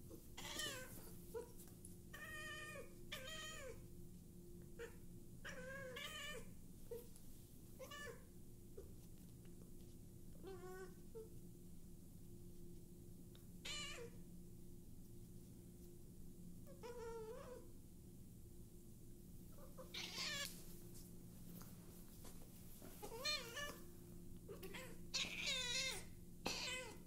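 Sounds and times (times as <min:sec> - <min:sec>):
faint steady hum: 0:00.0 - 0:27.0
cat meowing: 0:13.7 - 0:14.2, 0:19.8 - 0:20.5, 0:23.0 - 0:23.8, 0:24.5 - 0:27.0.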